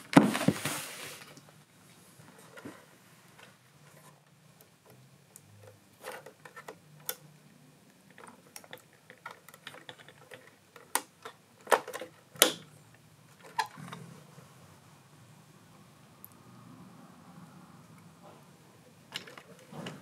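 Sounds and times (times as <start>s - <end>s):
plastic parts clicking: 4.6s - 7.2s, 8.1s - 12.7s, 13.3s - 14.0s, 19.1s - 20.0s.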